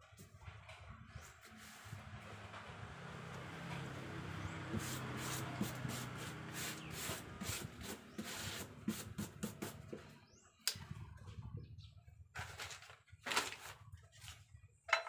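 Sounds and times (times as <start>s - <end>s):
wire brush scraping wood: 4.6s - 10.0s.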